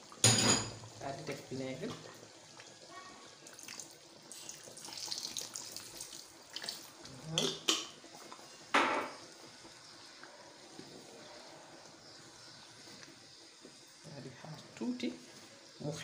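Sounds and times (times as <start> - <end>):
liquid running and splashing: 1.4 - 8.5.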